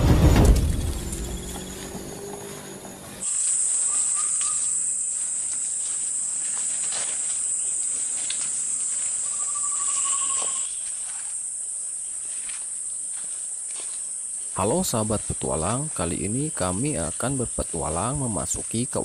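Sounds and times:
forest insects shrilling: 0:00.6 - 0:19.0
bird trill: 0:01.0 - 0:05.0, 0:09.2 - 0:10.9
footsteps on leaf litter: 0:02.4 - 0:11.4, 0:12.1 - 0:19.0.

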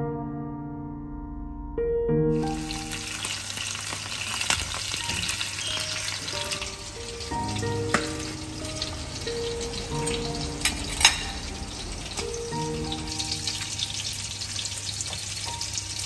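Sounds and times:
fish sizzling in a frying pan: 0:02.4 - 0:16.0
soft music notes: 0:04.9 - 0:14.8.

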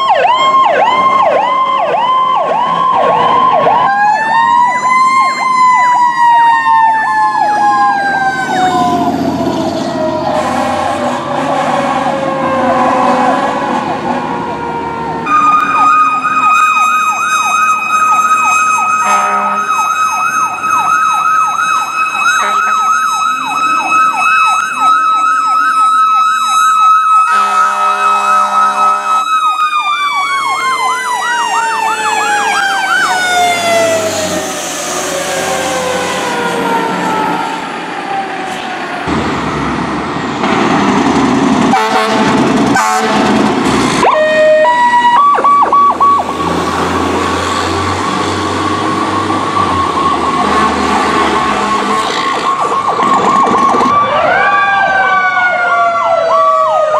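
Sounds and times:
electronic siren yelp: 0:00.0 - 0:39.0, 0:44.0 - 0:56.9
siren wail: 0:00.0 - 0:40.2, 0:41.0 - 0:56.9
truck engine and road noise: 0:00.0 - 0:56.9
low horn: 0:10.2 - 0:12.2, 0:19.0 - 0:19.8, 0:22.4 - 0:22.9, 0:27.3 - 0:29.2, 0:41.7 - 0:43.4.

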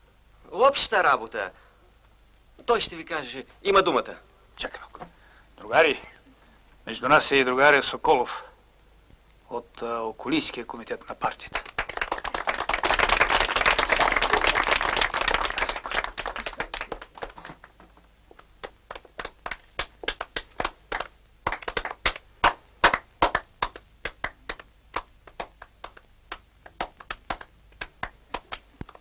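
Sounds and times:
applause: 0:11.2 - 0:29.0.

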